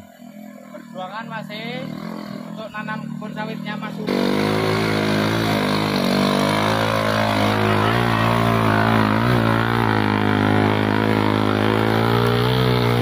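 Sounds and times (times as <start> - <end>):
motorcycle engine under load: 3.7 - 13.0.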